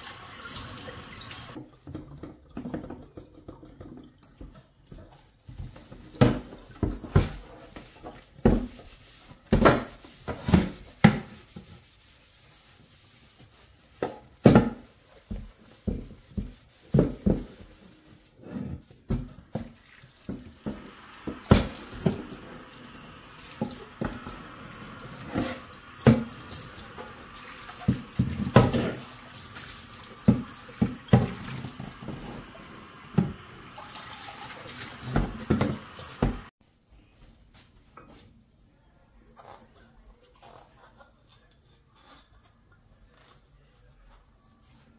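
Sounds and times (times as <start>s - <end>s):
tap water running into sink: 0.0s - 8.6s, 19.1s - 36.5s.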